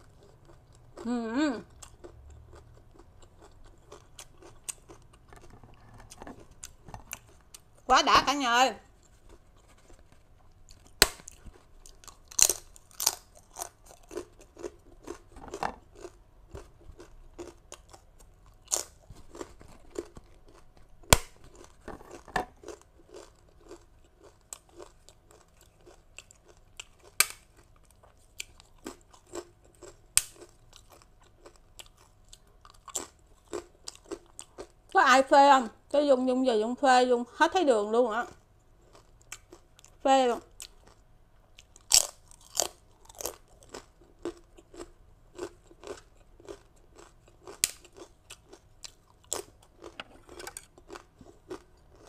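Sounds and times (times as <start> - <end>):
crunchy chewing of cracker: 0.0 - 7.9, 8.9 - 35.0, 38.2 - 52.0
cracker snapping: 10.9 - 11.4, 21.1 - 21.5, 27.2 - 27.5, 30.2 - 30.5, 47.6 - 47.9.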